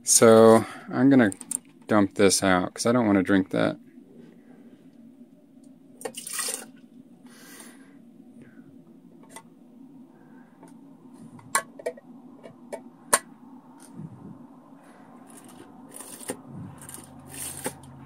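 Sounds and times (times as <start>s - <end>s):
water pouring splashes: 6.0s - 6.7s.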